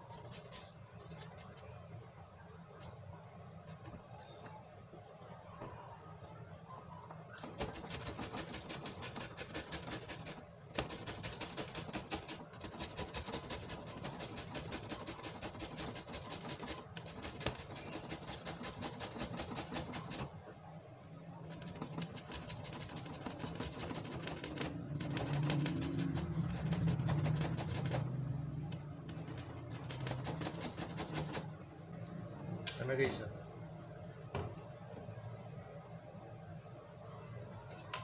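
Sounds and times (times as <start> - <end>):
grating on metal grater: 7.5 - 20.2, 21.6 - 28.1, 29.2 - 31.5.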